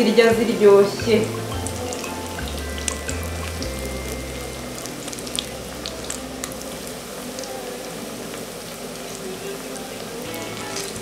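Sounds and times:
food deep-frying in hot oil: 0.0s - 11.0s.

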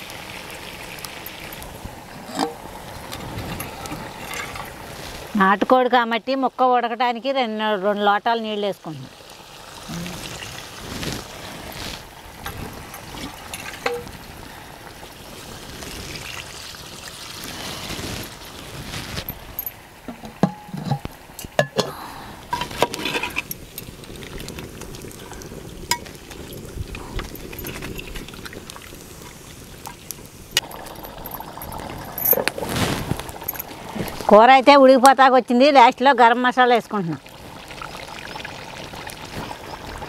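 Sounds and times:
water pouring into pot: 0.0s - 5.4s, 9.0s - 21.8s, 22.4s - 34.4s, 36.8s - 40.0s
metal vessels clinking: 1.2s - 4.8s, 12.4s - 14.2s, 19.2s - 23.9s, 25.9s - 26.2s, 30.6s - 32.6s.

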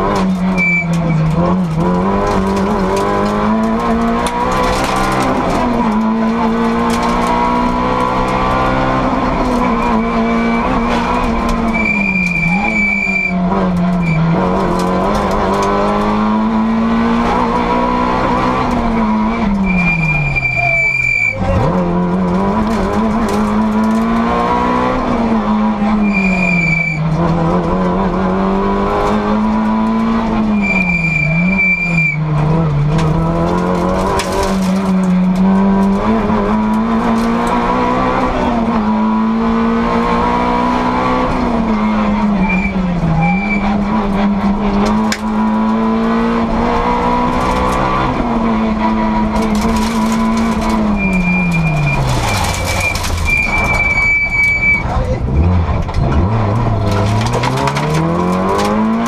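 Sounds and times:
tyres squealing: 0.0s - 16.1s, 18.0s - 24.9s, 25.5s - 27.2s, 30.4s - 35.3s, 41.1s - 46.2s, 48.8s - 59.0s
rally car engine revving: 0.0s - 59.0s.

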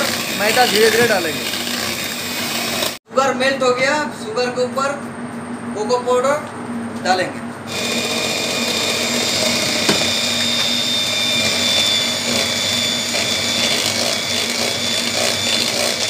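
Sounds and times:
electric hand mixer running: 0.0s - 3.0s, 7.7s - 16.0s.

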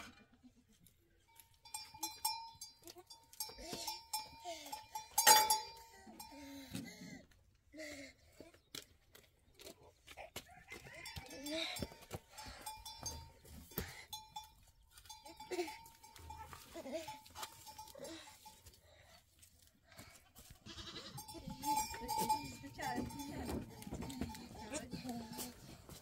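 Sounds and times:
goats bleating: 20.5s - 25.6s.

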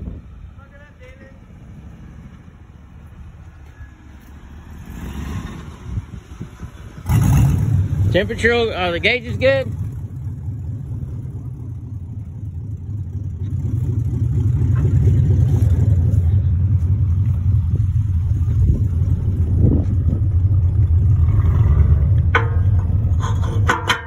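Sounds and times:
truck engine idling: 7.9s - 24.0s.

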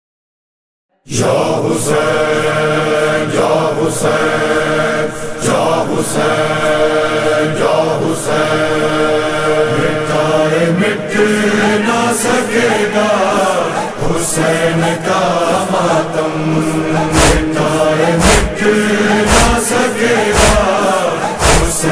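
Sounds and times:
voices chanting long notes: 1.1s - 21.9s
sharp beat: 16.9s - 21.9s.

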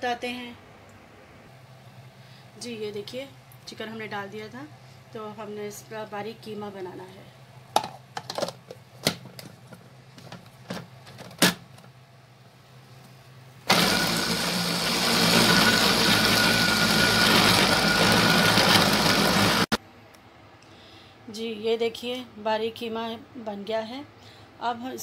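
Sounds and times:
food processor motor grinding: 13.7s - 19.8s.

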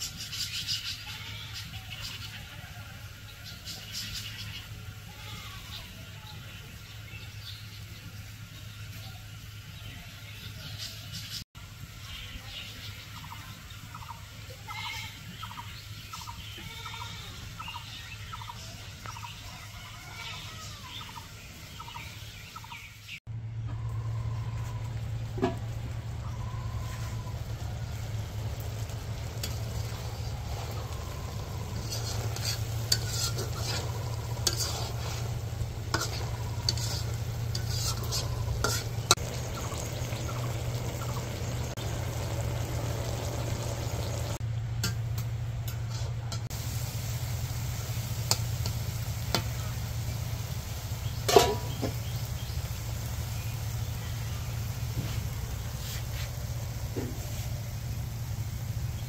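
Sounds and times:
fowl calling: 24.4s - 44.4s
food frying in a pan: 25.4s - 59.0s
spatula scraping a pan: 31.4s - 39.2s, 55.0s - 57.6s.

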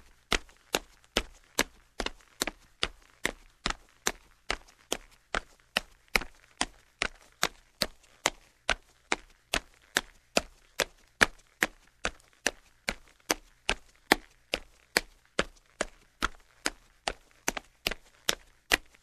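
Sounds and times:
man's footsteps walking: 0.0s - 19.0s.

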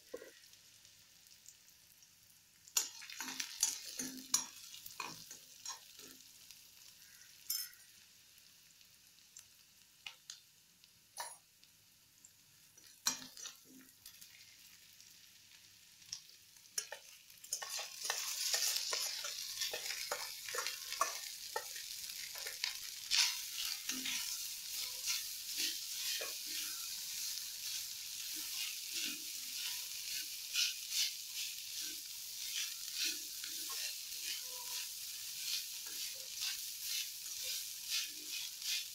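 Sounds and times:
food sizzling in oil: 0.0s - 38.9s
metal spatula scraping pan: 16.8s - 38.9s.

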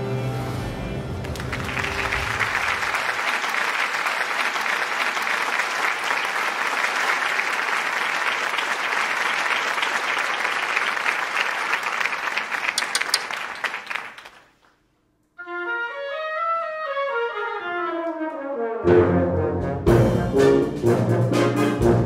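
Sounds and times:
ensemble music: 0.0s - 2.7s
audience applauding: 1.1s - 14.7s.

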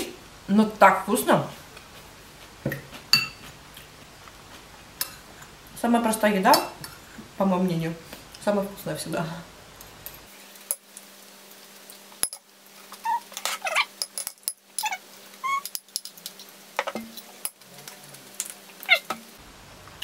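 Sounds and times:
spoon clicking and scraping bowl: 2.7s - 3.5s, 13.3s - 17.6s.

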